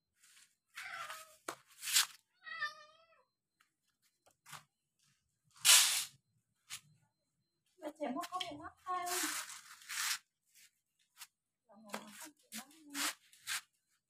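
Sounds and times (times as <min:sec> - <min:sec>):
cat meowing: 0:00.8 - 0:01.4, 0:02.4 - 0:03.2.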